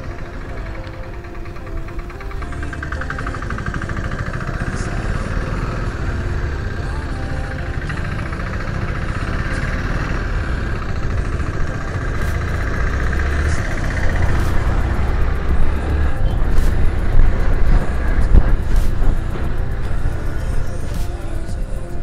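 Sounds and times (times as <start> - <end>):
motorcycle engine running: 0.0 - 22.0
wind buffeting microphone: 0.0 - 22.0.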